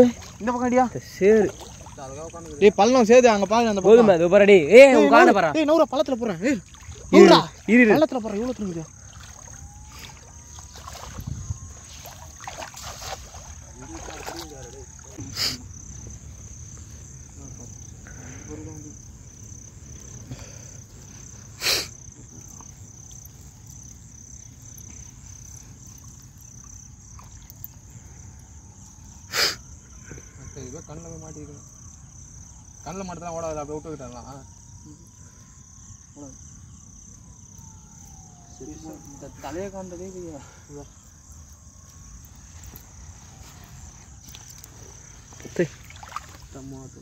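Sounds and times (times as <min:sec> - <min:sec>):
crickets trilling: 0:00.0 - 0:47.0
person calling out: 0:07.1 - 0:07.6.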